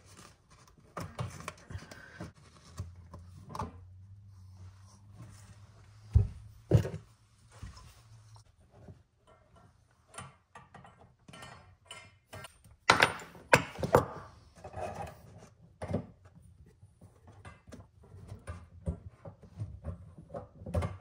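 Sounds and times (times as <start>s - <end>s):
knocks and thuds of handling: 5.9s - 7.8s.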